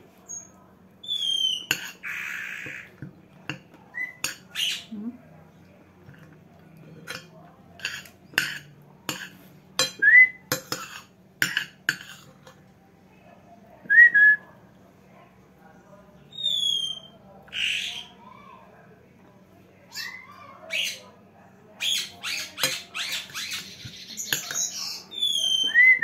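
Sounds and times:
bird whistling: 1.0s - 1.7s, 16.4s - 17.2s, 23.0s - 26.0s
spoon clinking on a plate: 1.7s - 2.0s, 3.4s - 4.5s, 6.1s - 12.7s, 22.6s - 23.2s, 24.3s - 24.8s.

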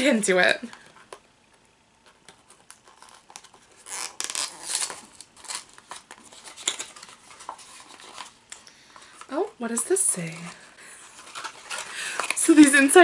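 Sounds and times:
cardboard box being torn open: 3.0s - 6.0s.

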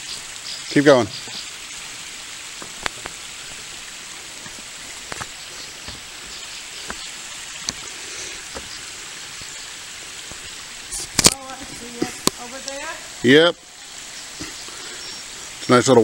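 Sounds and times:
creek and small waterfall rushing: 0.0s - 16.0s
footsteps on trail: 2.6s - 8.8s.

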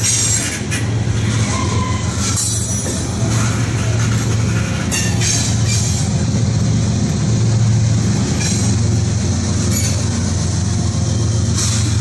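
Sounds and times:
diesel locomotive: 0.0s - 12.0s
train wheels rumbling on rail: 0.0s - 12.0s
high wheel squeals: 1.3s - 6.2s, 8.3s - 8.8s, 9.6s - 10.1s.

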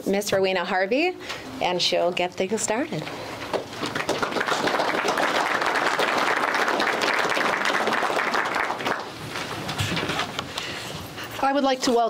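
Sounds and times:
audience applauding: 3.6s - 9.2s.

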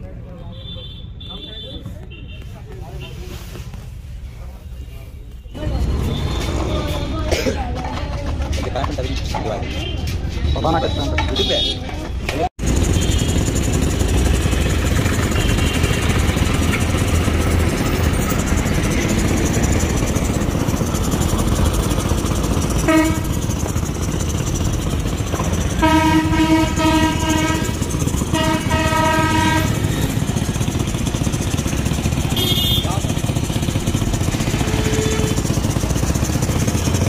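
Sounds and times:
loud horn blasts: 12.8s - 17.4s, 22.8s - 23.7s, 25.4s - 30.6s, 32.1s - 33.2s, 34.2s - 35.8s.

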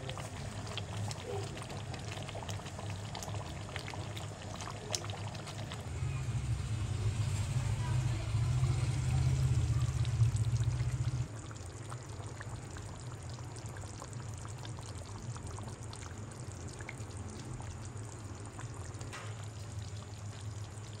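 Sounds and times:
curry simmering with bubbling pops: 0.0s - 21.0s
loud low hum: 5.8s - 11.3s.

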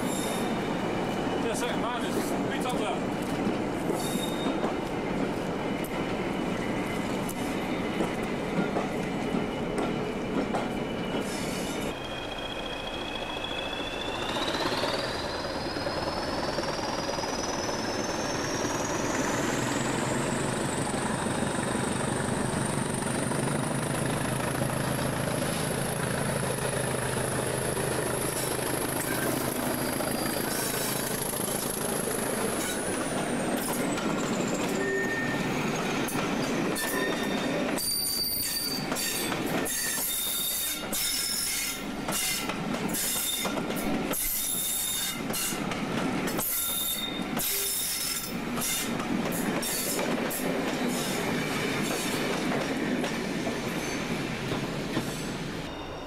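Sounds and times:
train coaches rolling: 0.0s - 56.0s.

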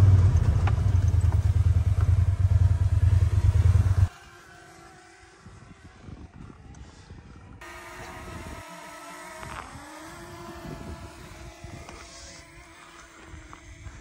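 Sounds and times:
low rumbling noise: 0.0s - 4.1s
motor running: 0.0s - 14.0s.

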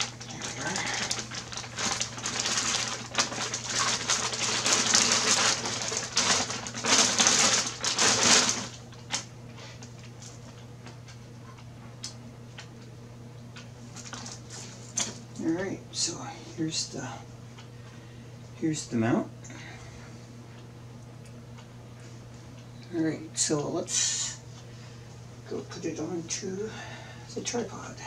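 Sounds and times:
plastic bag crinkling: 0.0s - 9.2s, 14.0s - 14.6s.

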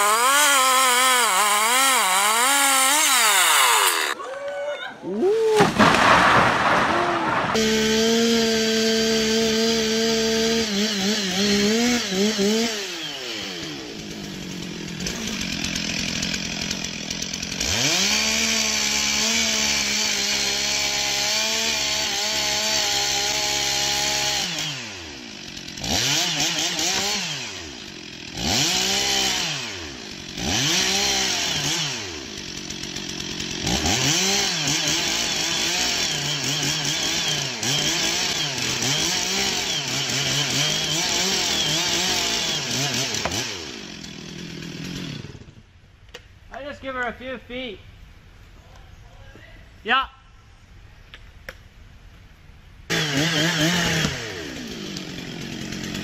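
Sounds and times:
chainsaw cutting wood: 0.0s - 4.2s, 5.0s - 46.2s, 52.9s - 56.0s.

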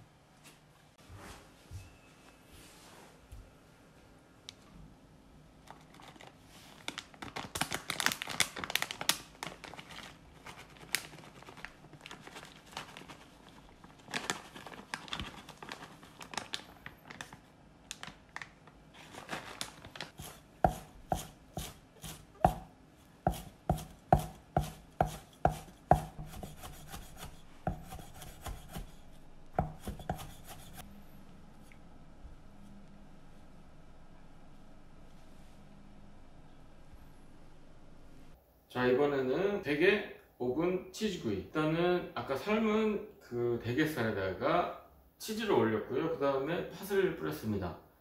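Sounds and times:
rustling and scraping of food: 5.6s - 8.0s, 8.8s - 17.4s, 18.9s - 30.9s
knife chopping on wooden board: 20.2s - 22.7s, 23.3s - 30.8s.

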